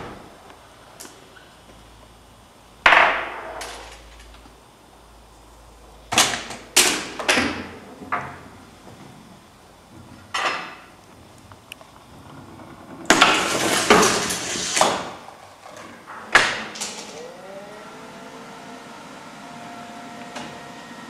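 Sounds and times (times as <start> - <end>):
faint rising tone: 17.0 - 21.0.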